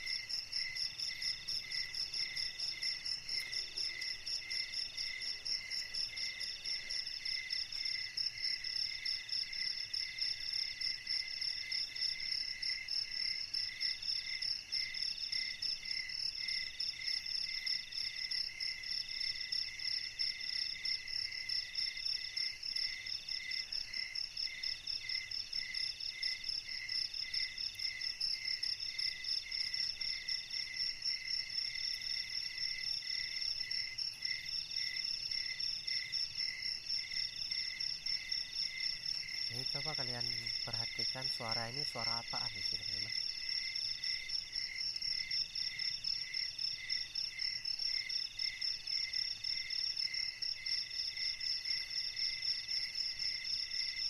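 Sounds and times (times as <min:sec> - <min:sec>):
high continuous insect trill: 0:00.0 - 0:54.0
insect repeating phrases: 0:39.4 - 0:43.3.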